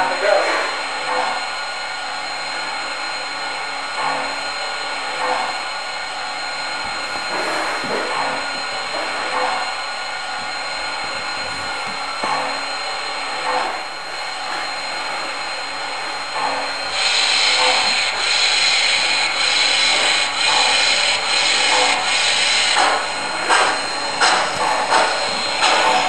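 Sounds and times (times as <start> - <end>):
model steam locomotive chuffs: 0.0 - 26.0
steady steam hiss: 2.6 - 26.0.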